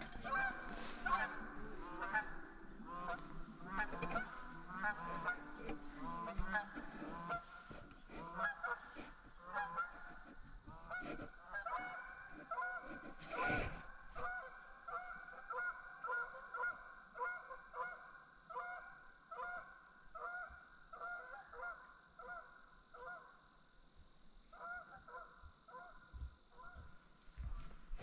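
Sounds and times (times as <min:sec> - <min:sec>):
geese honking: 0:00.0 - 0:23.4, 0:24.5 - 0:26.0.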